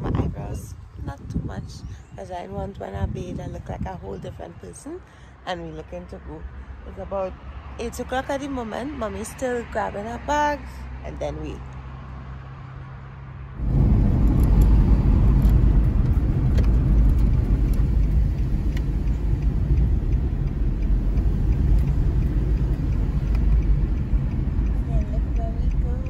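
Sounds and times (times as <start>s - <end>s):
car driving rumble inside cabin: 13.6s - 26.0s.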